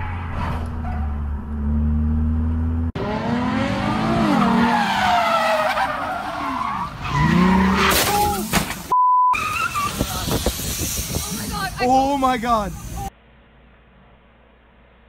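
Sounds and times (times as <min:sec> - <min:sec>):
car engine revving: 0:00.6 - 0:06.0
tyres squealing: 0:09.4 - 0:10.5.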